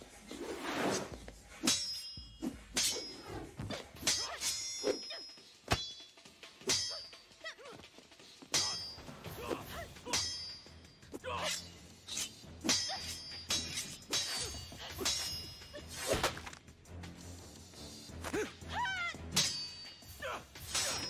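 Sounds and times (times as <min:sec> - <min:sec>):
metallic sword clashes: 0:01.6 - 0:07.3, 0:08.5 - 0:16.6, 0:19.3 - 0:21.0
shouts and grunts: 0:09.3 - 0:10.3, 0:11.2 - 0:11.6, 0:18.2 - 0:19.3, 0:20.1 - 0:21.0.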